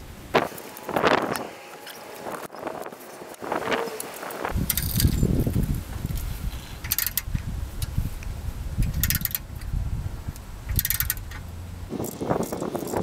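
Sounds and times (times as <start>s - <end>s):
ratchet wrench clicking: 4.6s - 5.6s, 6.6s - 8.0s, 8.8s - 13.0s.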